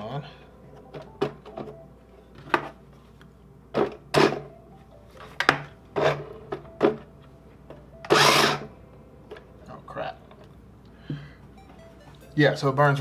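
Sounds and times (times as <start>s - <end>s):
wheels spinning on a desk: 8.1s - 8.6s
toy car electric motor whirring: 8.1s - 8.7s.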